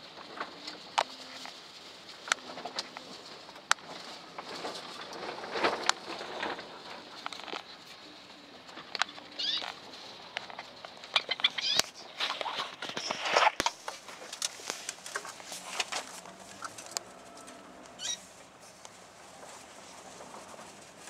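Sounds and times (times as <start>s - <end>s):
scratchy rustling: 0.0s - 21.0s
cockatiels chirping: 9.0s - 9.9s, 11.1s - 12.6s, 18.0s - 18.3s.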